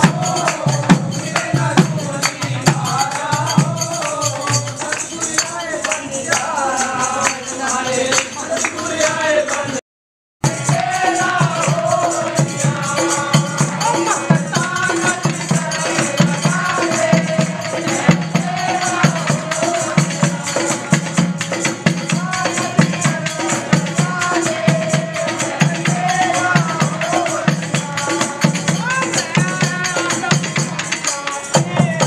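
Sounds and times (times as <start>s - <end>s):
devotional singing: 0.0s - 9.8s, 10.4s - 32.0s
drum beating steady rhythm: 0.0s - 9.8s, 10.4s - 32.0s
jingling hand percussion: 0.0s - 9.8s, 10.4s - 32.0s.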